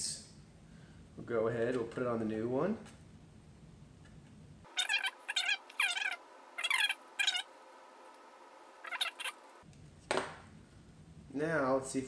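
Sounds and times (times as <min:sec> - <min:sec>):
animal calls falling in pitch: 0:08.8 - 0:09.4.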